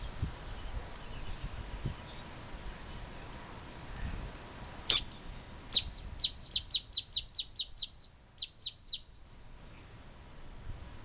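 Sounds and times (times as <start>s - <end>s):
grackle calling: 4.9s - 9.1s.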